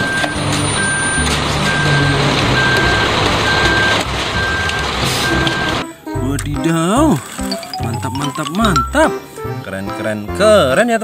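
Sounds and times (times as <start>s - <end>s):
backup alarm beeping: 0.0s - 5.8s
truck engine running: 0.0s - 5.8s.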